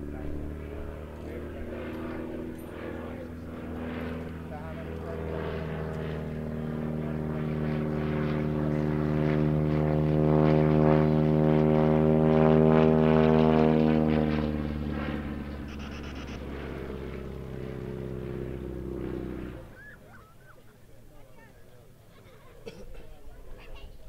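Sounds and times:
biplane engine droning: 0.0 - 24.0.

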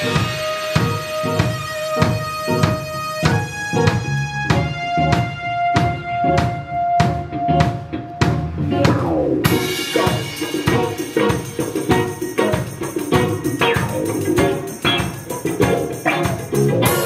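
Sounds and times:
cymbals crashing: 0.0 - 3.8, 9.4 - 17.0
live band playing: 0.0 - 17.0.

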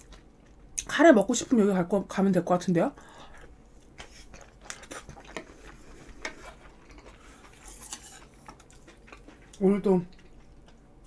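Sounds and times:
person chewing food: 3.2 - 11.0.

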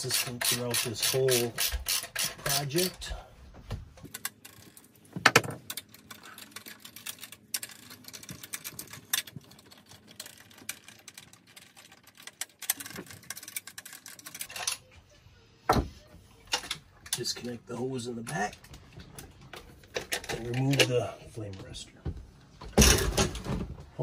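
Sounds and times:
ratchet wrench clicking: 0.0 - 3.0.

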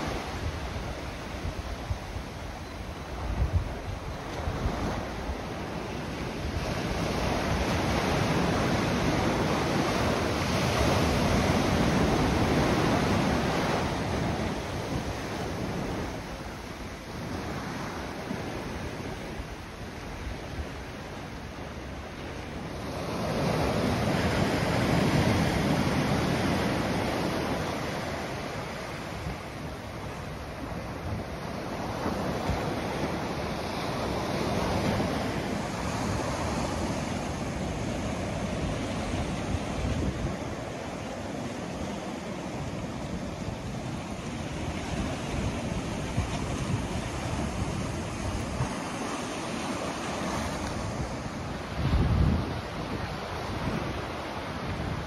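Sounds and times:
ocean waves breaking on shore: 0.0 - 55.0.

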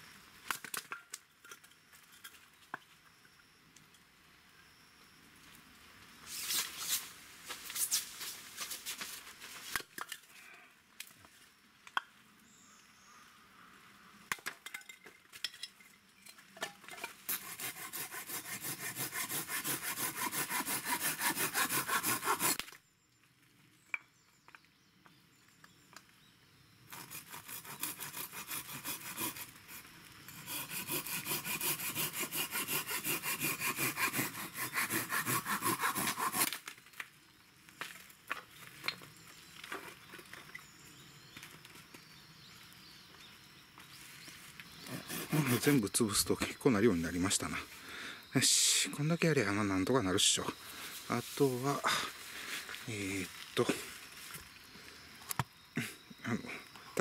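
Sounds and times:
hand saw cutting wood: 17.3 - 22.7, 26.9 - 36.6, 44.8 - 45.8.

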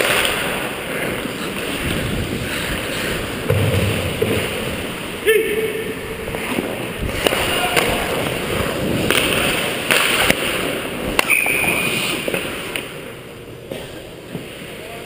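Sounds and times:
hockey sticks clacking: 0.0 - 4.7, 6.3 - 14.8
skate blades scraping on ice: 6.4 - 12.9.

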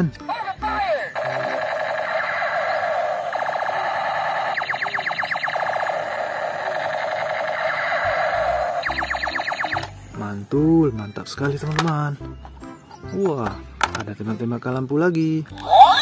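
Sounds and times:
toy gun laser sound effect: 0.8 - 10.0, 15.6 - 16.0.

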